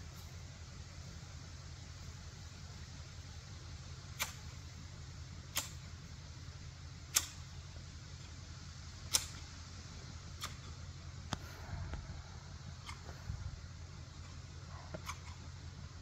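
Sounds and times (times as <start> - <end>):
steady low rumble: 0.0 - 16.0
garden shears snapping shut: 4.1 - 4.6, 5.5 - 5.8, 7.1 - 7.5, 9.1 - 9.5, 10.4 - 10.8, 14.9 - 15.4.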